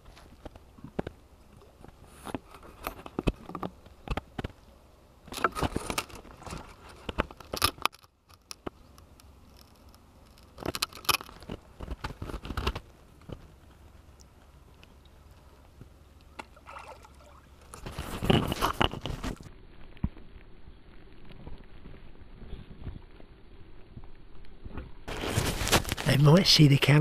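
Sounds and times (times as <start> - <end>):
camera handling clicks and rustles: 9.6 - 13.4.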